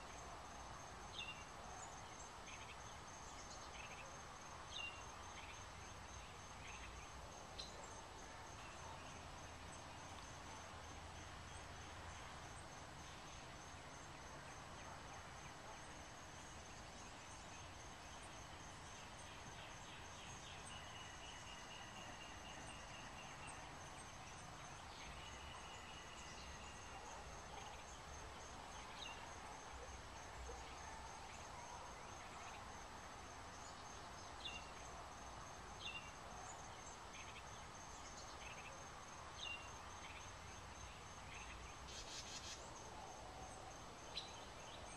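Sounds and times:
high-pitched insect trill: 35.4 - 43.2.

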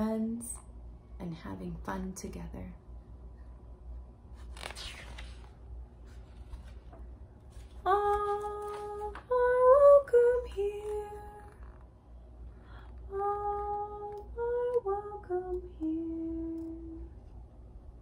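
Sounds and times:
woman singing unaccompanied: 7.8 - 11.8, 13.0 - 17.2.

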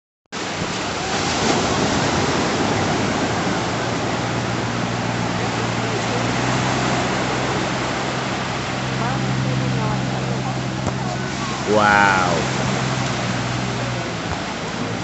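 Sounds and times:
waves washing on sandy beach: 0.4 - 15.0.

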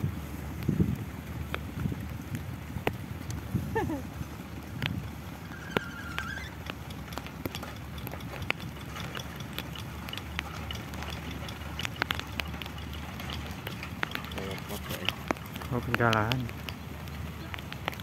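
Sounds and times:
diesel engine chugging: 4.6 - 18.0
metal wheels clacking: 5.4 - 18.0.

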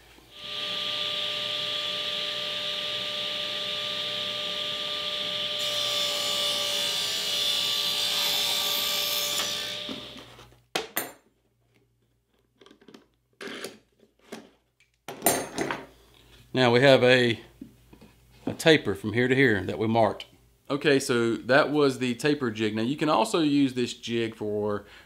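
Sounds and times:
table saw cutting wood: 0.3 - 10.4.

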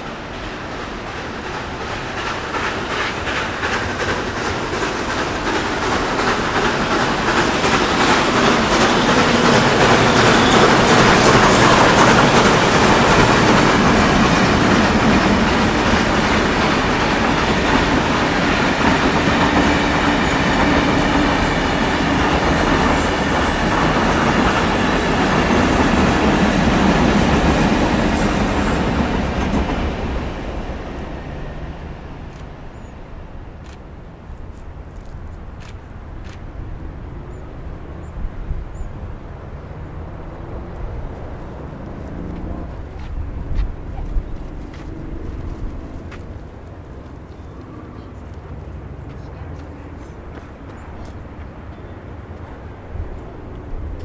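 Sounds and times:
steam train passing: 0.0 - 54.0
wheels clattering over rails: 1.0 - 27.6.

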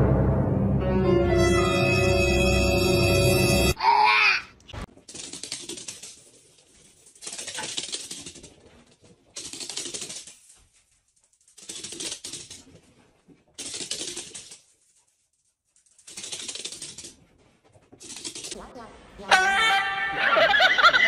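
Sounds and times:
paws skittering on wooden floor: 4.9 - 18.6.

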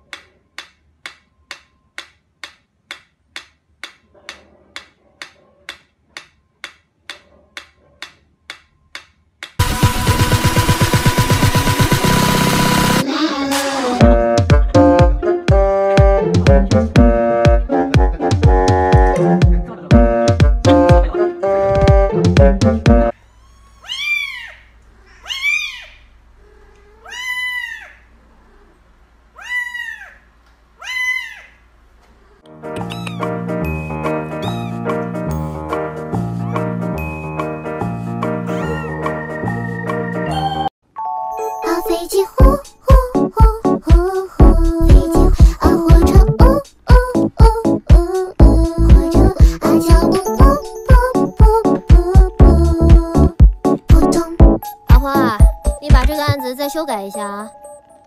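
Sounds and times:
metronome ticking: 0.1 - 4.0, 48.4 - 58.0
kitten meowing: 23.4 - 24.6, 25.2 - 26.0, 26.9 - 27.9, 32.8 - 33.3, 34.4 - 34.8, 38.5 - 39.0.

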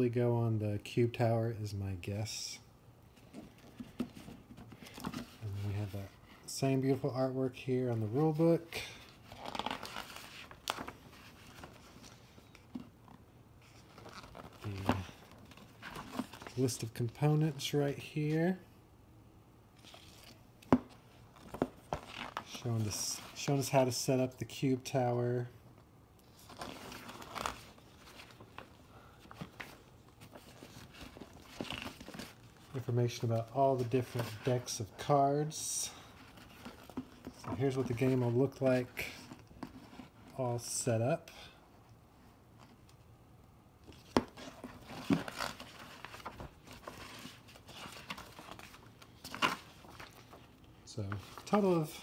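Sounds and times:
paper pages rustling: 9.0 - 17.7, 19.8 - 23.5, 26.2 - 35.1, 36.0 - 40.3, 43.8 - 51.9.

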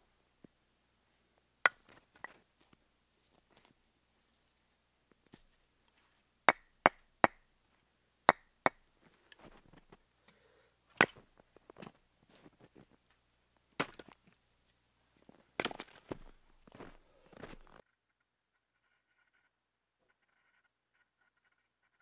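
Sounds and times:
axe chopping wood: 13.8 - 14.2, 15.6 - 16.0
footsteps in snow: 15.2 - 17.8.

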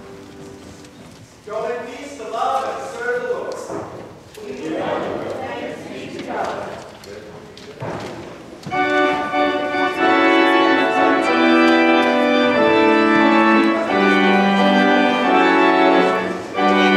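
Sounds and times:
church organ playing chords: 8.7 - 16.9.

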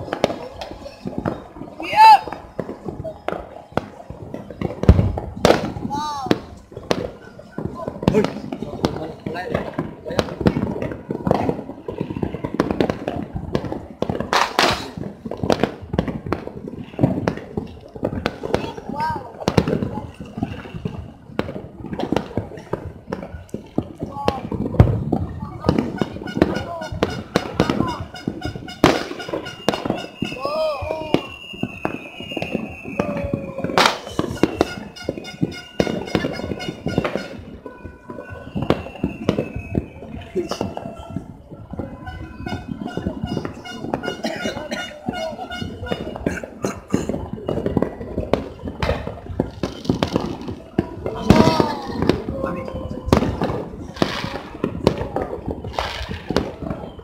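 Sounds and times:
firecrackers popping and banging: 0.0 - 57.0.

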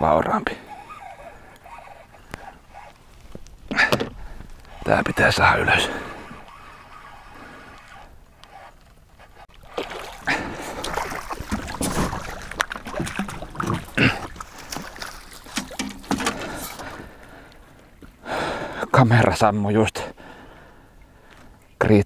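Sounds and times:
water splashing: 9.5 - 17.4.

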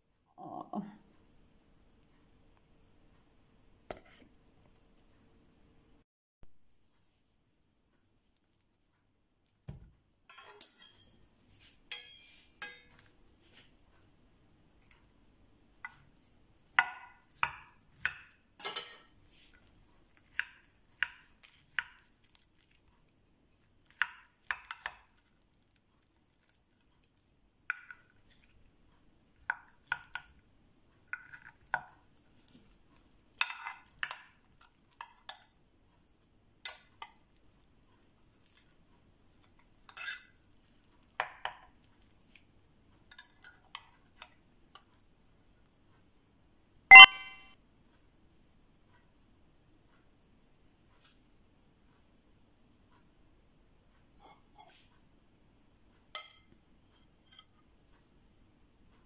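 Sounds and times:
metal utensils clinking on glass dish: 10.3 - 11.3, 11.9 - 13.3, 18.6 - 19.2.

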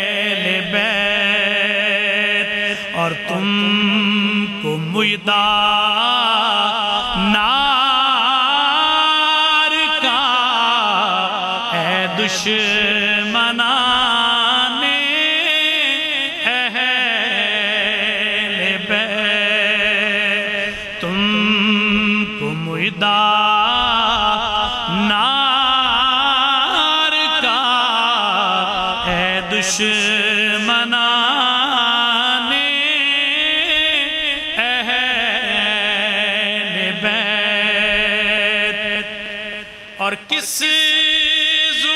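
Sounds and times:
man chanting devotional poem: 0.0 - 41.9.

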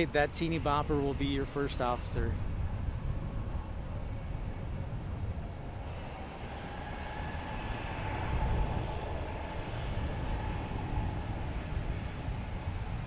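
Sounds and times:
distant jet engines rumbling: 0.0 - 13.0
faint engine whine: 0.0 - 13.0.

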